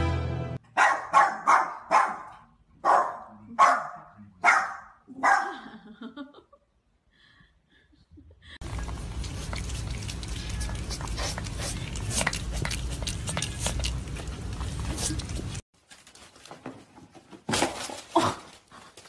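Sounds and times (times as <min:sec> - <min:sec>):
small dog barking: 0:00.7 - 0:05.6.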